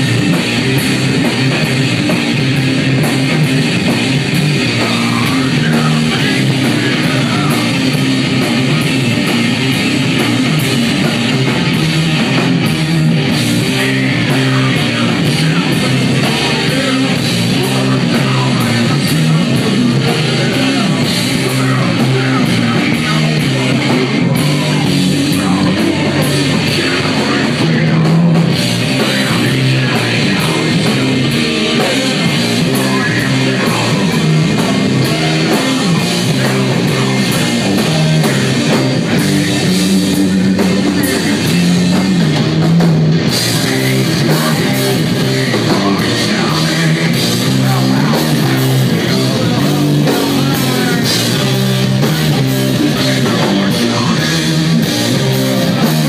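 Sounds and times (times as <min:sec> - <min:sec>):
bass guitar riffing: 0:00.0 - 0:56.0
distorted guitar riffing: 0:00.0 - 0:56.0
drum kit: 0:00.0 - 0:56.0
vocals: 0:00.0 - 0:56.0.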